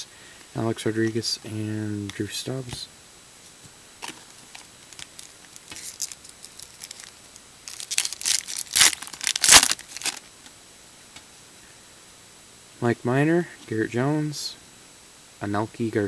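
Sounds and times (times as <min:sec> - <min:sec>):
foil wrapper tearing and crinkling: 0:04.0 - 0:10.3.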